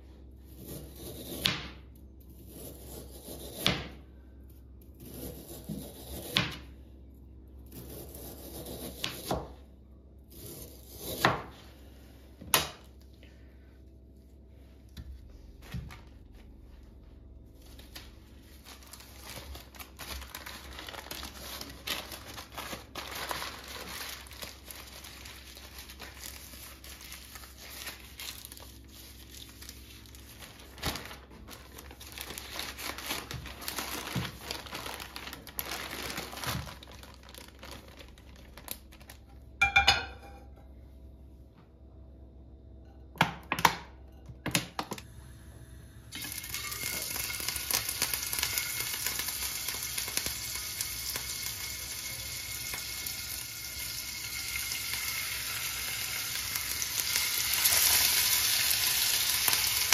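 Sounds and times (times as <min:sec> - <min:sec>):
plastic wrap crinkling: 0:15.3 - 0:39.6, 0:46.2 - 0:59.9.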